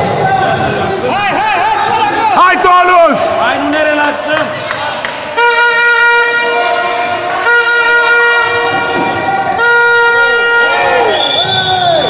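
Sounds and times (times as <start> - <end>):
horn blasts: 5.3 - 12.0.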